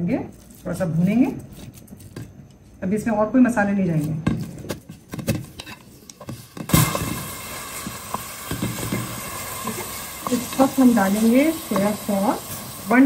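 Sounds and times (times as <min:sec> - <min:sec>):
meat sizzling in oil: 0:06.4 - 0:13.0.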